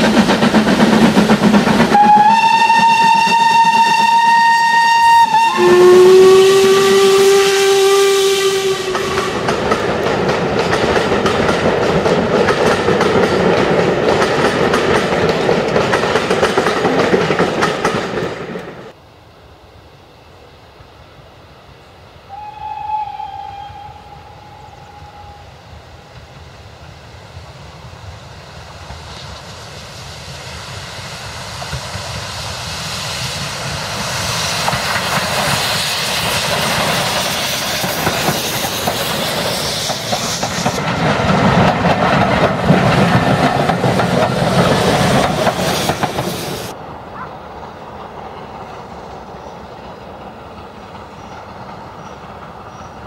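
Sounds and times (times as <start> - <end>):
steam locomotive exhaust and hiss: 0.0 - 53.0
steam locomotive whistle: 1.9 - 9.6, 22.2 - 26.0.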